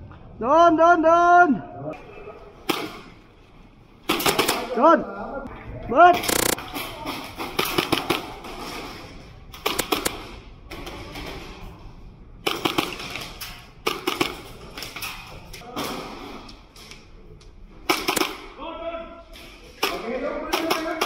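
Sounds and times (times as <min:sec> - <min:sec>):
airsoft pistol shots: 0:17.9 - 0:18.4.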